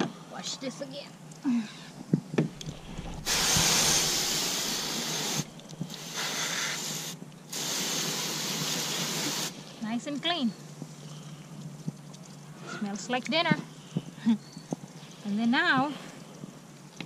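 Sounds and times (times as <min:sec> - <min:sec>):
hose nozzle spraying water: 0:02.6 - 0:09.5.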